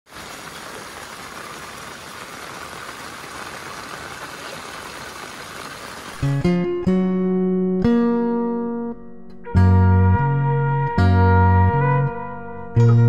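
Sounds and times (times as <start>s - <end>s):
steady rain hiss: 0.1s - 6.4s
plucked string music: 6.2s - 13.0s.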